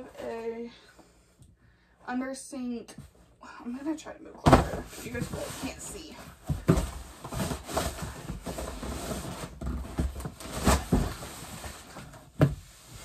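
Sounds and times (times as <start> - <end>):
knocks and thumps: 4.4 - 12.7
items and packaging handled: 4.4 - 13.0.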